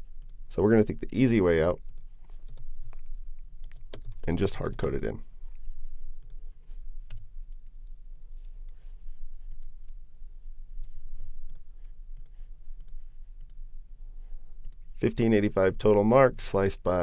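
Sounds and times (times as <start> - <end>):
low electrical hum: 0.0 - 17.0
computer mouse clicks: 1.8 - 5.1, 9.4 - 10.0, 10.7 - 13.6, 14.6 - 14.8.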